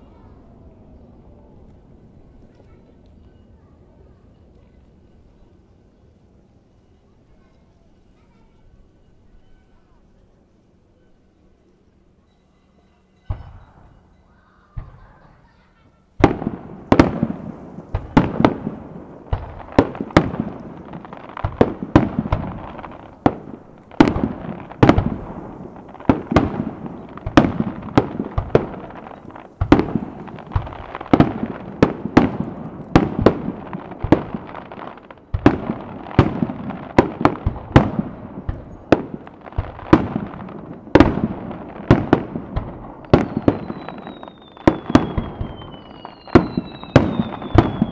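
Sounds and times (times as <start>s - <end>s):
firework shells bursting: 16.2s - 47.9s.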